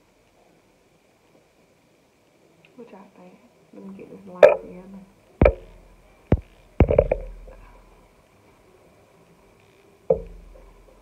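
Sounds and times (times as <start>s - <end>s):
sharp knocks with low boom: 5.4s - 7.6s, 10.1s - 10.7s.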